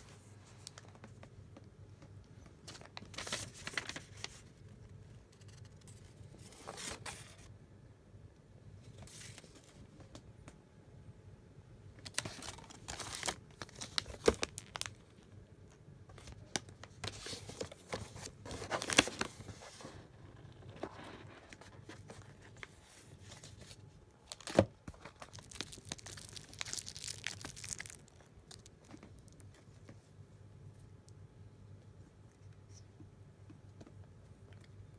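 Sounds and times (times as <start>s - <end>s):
packaging crinkling and rustling: 0.6s - 1.3s, 2.6s - 4.5s, 12.0s - 15.3s, 16.1s - 29.6s.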